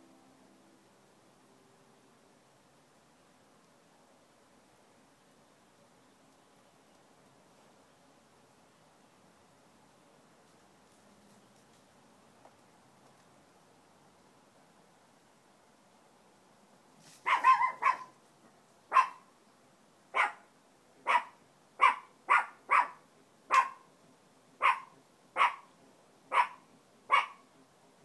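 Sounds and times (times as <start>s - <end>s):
dog barking: 17.2s - 18.1s, 18.9s - 19.2s, 20.1s - 23.9s, 24.6s - 25.7s, 26.3s - 27.4s.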